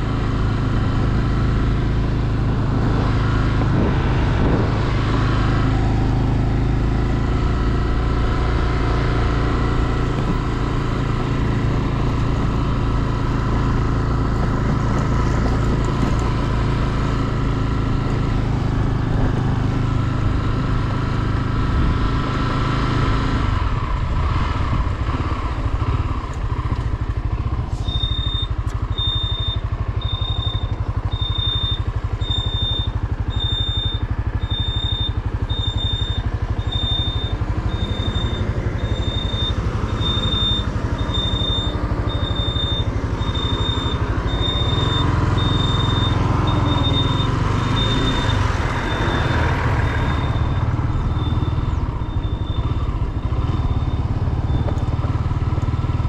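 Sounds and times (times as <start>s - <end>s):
motorcycle engine running: 0.0s - 56.0s
high electronic beeps: 27.8s - 54.7s.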